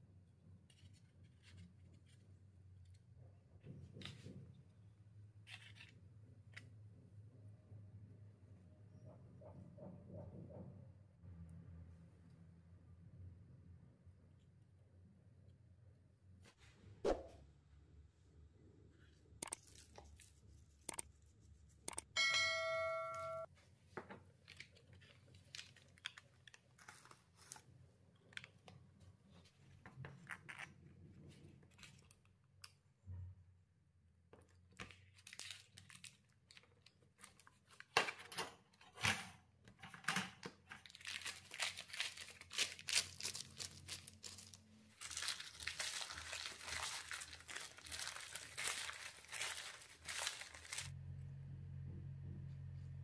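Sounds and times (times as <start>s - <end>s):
taps and clicks: 21.9s - 22.5s
short ringing ding: 22.2s - 23.5s
crinkling and rustling: 23.5s - 32.8s, 34.4s - 51.0s.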